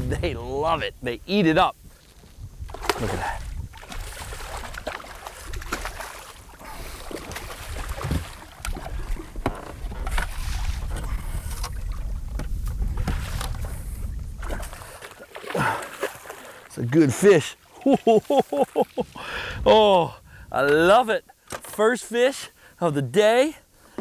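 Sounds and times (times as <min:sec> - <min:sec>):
wind rumble on microphone: 0:00.0 - 0:15.0, 0:19.3 - 0:20.9
fish splashing at water surface: 0:02.7 - 0:09.3.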